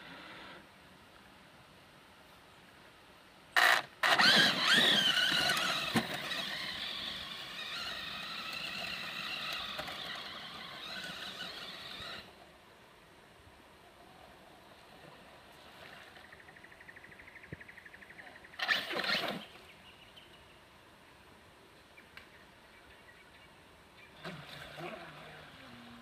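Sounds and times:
rc truck electric motor whining: 3.6 - 12.3.

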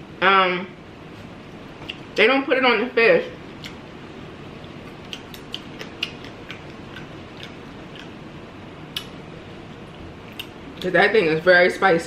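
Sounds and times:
chewing crunches: 4.6 - 8.2, 8.9 - 9.2.

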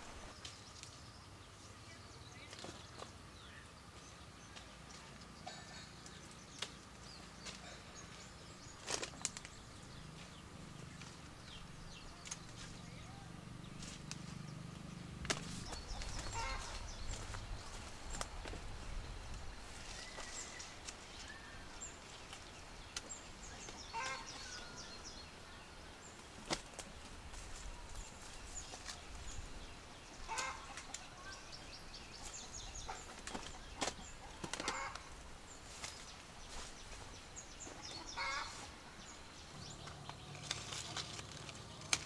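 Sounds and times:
poultry calling: 15.4 - 17.9, 23.8 - 25.0, 30.2 - 36.7, 37.7 - 38.8.

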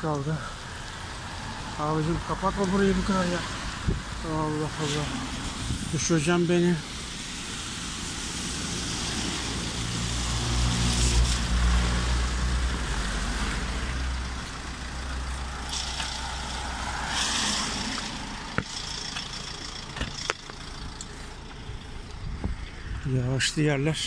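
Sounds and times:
tyres hissing on wet asphalt: 0.0 - 24.0
low engine hum: 6.8 - 24.0.

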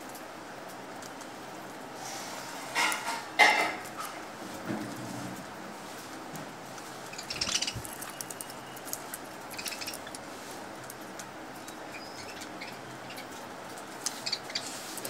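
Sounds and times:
budgerigars chirping: 7.1 - 7.9, 9.5 - 10.1, 11.7 - 13.4, 14.1 - 14.8.

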